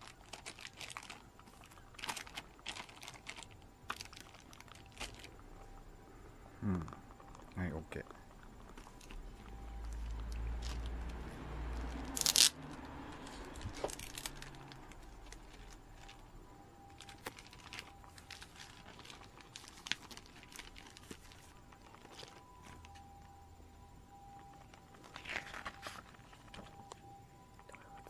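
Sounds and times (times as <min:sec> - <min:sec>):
plastic crinkling and rustling: 0:00.0 - 0:05.4, 0:08.6 - 0:23.4, 0:24.3 - 0:27.2
plastic ripping: 0:00.0 - 0:05.4, 0:11.9 - 0:16.2, 0:16.9 - 0:22.8, 0:25.0 - 0:26.7.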